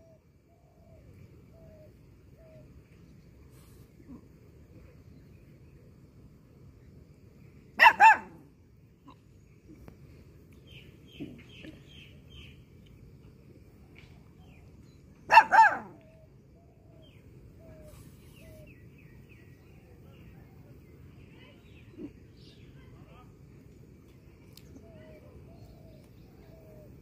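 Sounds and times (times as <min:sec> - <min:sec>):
faint bird chirps: 0:14.0 - 0:23.2, 0:24.4 - 0:27.0.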